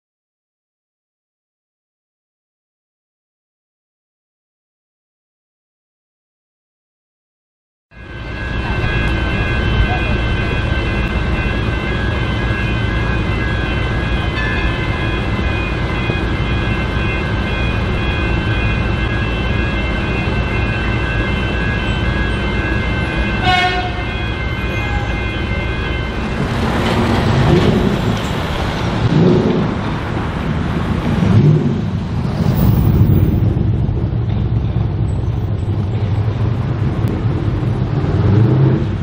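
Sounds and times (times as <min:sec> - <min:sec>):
level crossing bells ringing: 0:07.9 - 0:28.5
street traffic: 0:07.9 - 0:39.0
loud rumble: 0:26.5 - 0:39.0.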